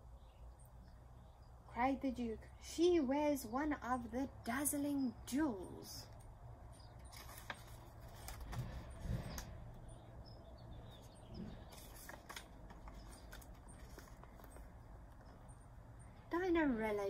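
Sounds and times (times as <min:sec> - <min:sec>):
book pages turning: 0:07.0 - 0:09.5, 0:11.4 - 0:15.4.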